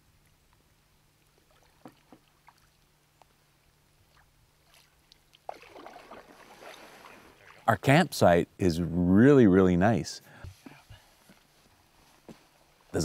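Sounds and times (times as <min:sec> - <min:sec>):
water drips: 0:01.2 - 0:03.4, 0:04.0 - 0:07.7
paddle swishing water: 0:01.3 - 0:02.9, 0:04.0 - 0:07.7.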